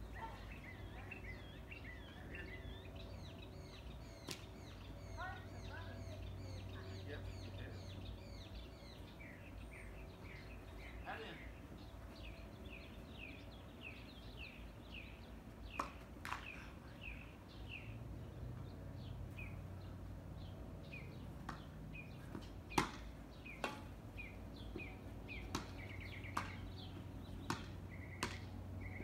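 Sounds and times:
bird chirping: 0:00.0 - 0:29.0
rackets hitting ball: 0:15.7 - 0:16.6, 0:21.4 - 0:28.5.

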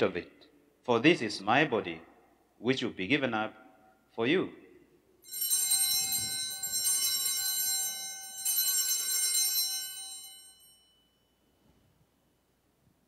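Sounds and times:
altar bells ringing: 0:05.2 - 0:11.5.

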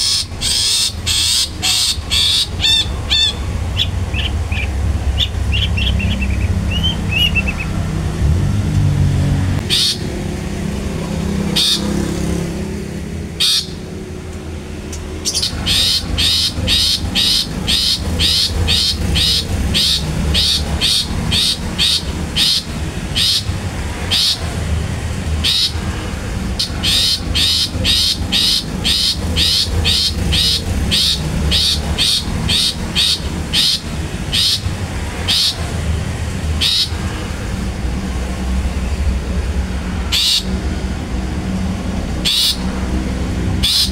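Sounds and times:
shrike calling: 0:00.0 - 0:08.0, 0:09.6 - 0:10.4, 0:11.0 - 0:12.6, 0:13.4 - 0:14.0, 0:14.8 - 0:35.8, 0:36.6 - 0:37.2, 0:40.0 - 0:40.6, 0:42.2 - 0:42.9, 0:43.5 - 0:43.9.

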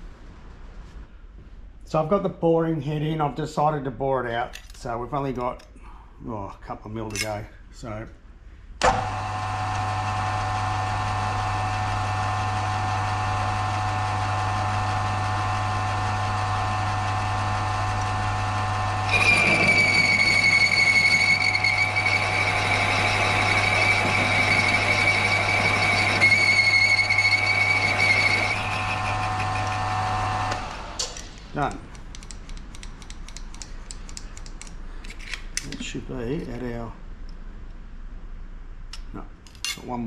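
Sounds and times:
milling machine spindle humming: 0:08.8 - 0:31.3
cutter squealing on metal: 0:19.1 - 0:30.1.

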